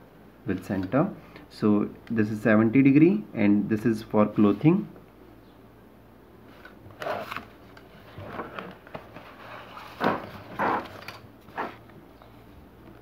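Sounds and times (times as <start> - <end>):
paper pages rustling: 6.5 - 11.8.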